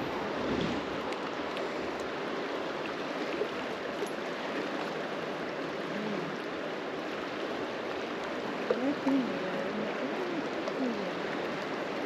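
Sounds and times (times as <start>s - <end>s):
river rushing past rocks: 0.0s - 12.0s.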